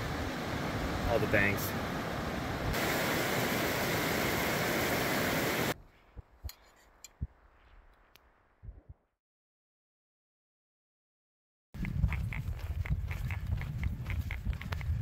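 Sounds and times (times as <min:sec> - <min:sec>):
mountain stream rushing: 0:00.0 - 0:05.8
wind rumble on microphone: 0:08.6 - 0:09.0, 0:11.8 - 0:15.0.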